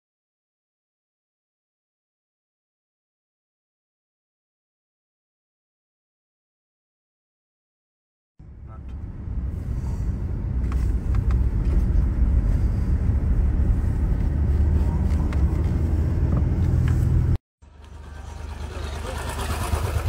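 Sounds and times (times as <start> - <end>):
vehicle rumbling in motion: 8.4 - 20.0.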